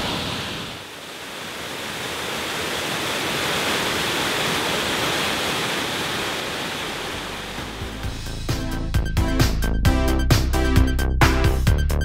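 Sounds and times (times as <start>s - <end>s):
waterfall rushing: 0.0s - 8.2s.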